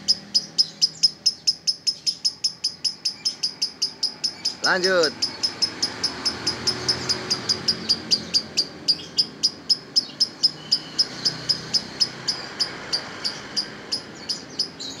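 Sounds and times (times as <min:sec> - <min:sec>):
lovebird shrill chirps: 0:00.0 - 0:15.0.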